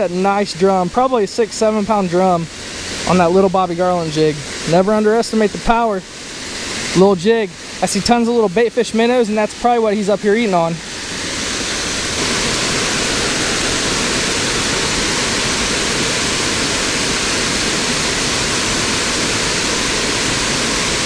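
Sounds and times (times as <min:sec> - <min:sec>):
waterfall rushing: 0:00.0 - 0:21.0.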